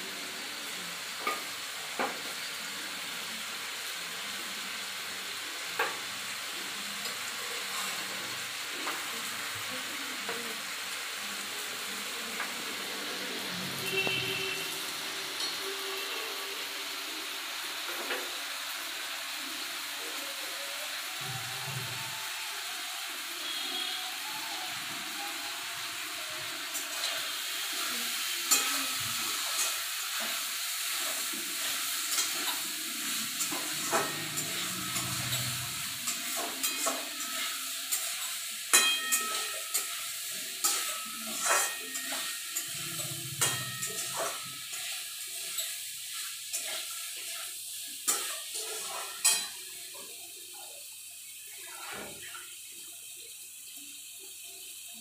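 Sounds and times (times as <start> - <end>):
food sizzling in a pan: 0.0 - 55.0
metal spatula scraping a pan: 25.9 - 50.0.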